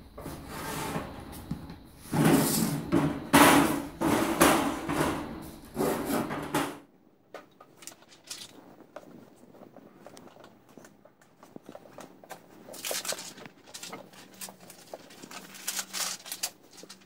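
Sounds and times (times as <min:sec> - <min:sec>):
panel scraping on table: 0:00.2 - 0:01.4, 0:02.1 - 0:06.8.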